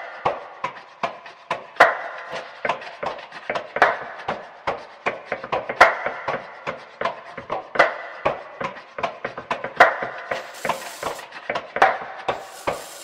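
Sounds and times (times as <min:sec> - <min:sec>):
scratchy rubs: 0:10.3 - 0:11.2, 0:12.4 - 0:13.0.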